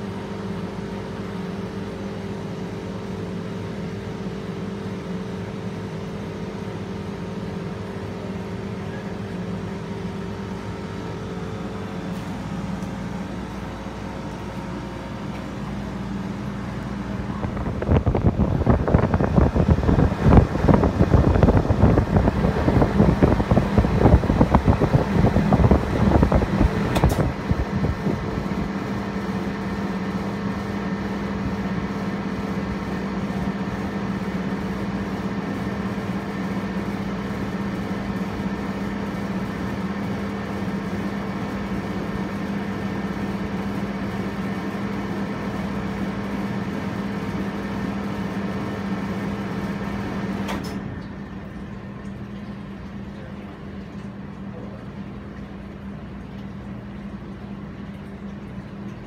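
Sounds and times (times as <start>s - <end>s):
air conditioner humming: 0.0s - 59.0s
fan air gusting on microphone: 0.0s - 59.0s
air conditioner switch click: 25.6s - 27.9s.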